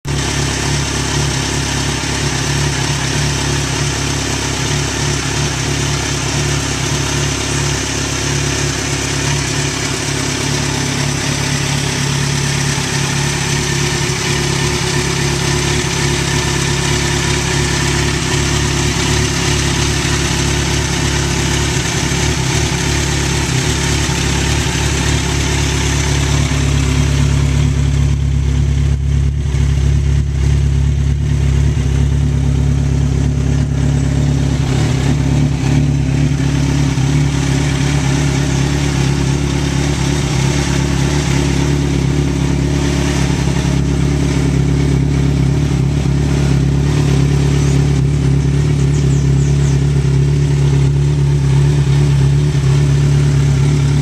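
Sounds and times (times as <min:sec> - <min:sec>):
motorcycle engine idling: 0:00.0 - 0:54.0.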